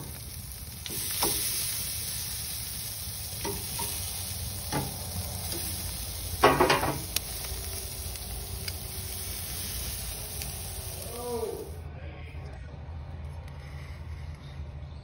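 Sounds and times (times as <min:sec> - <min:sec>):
food sizzling on a grill: 0:00.0 - 0:11.8
small crackles: 0:00.0 - 0:11.8.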